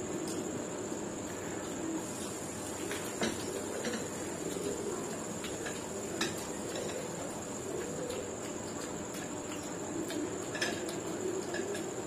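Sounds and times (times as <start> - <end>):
background hiss: 0.0 - 12.0
chewing and crunching: 2.8 - 12.0.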